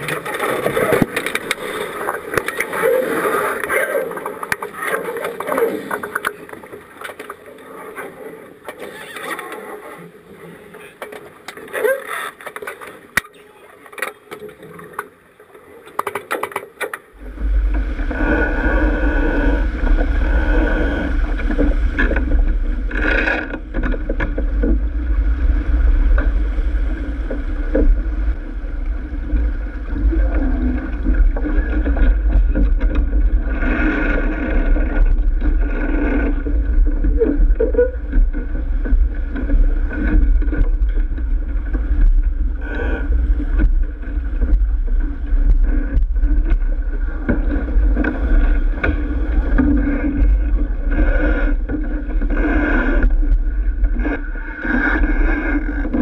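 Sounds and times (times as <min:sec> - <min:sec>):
water rushing along hull: 0:00.0 - 0:56.0
boat knocks and clicks: 0:19.6 - 0:56.0.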